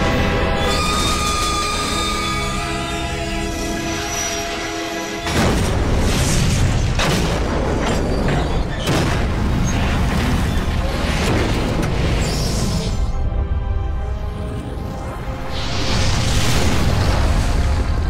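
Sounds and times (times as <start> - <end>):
loud train crash: 0.0 - 12.4
booming rumble of fire: 5.3 - 12.2.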